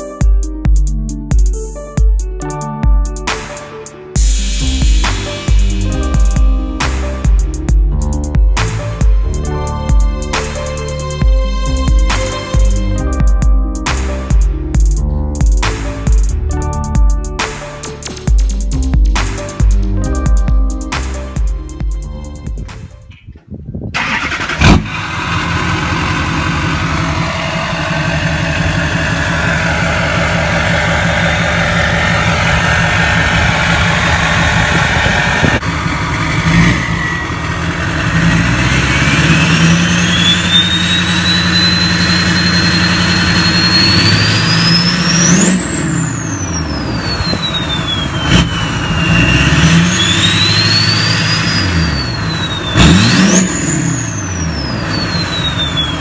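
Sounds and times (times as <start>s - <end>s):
diesel truck engine revving: 24.0s - 56.0s
turbo whistle: 39.3s - 56.0s.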